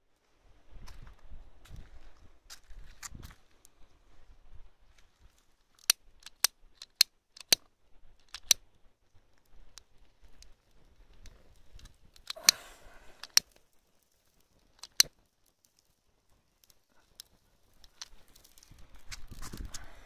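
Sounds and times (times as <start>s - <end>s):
hay crackling as it burns: 0.2s - 20.0s
lighter trigger clicks: 12.2s - 13.5s
lighter gas hiss: 12.2s - 13.7s, 16.9s - 20.0s.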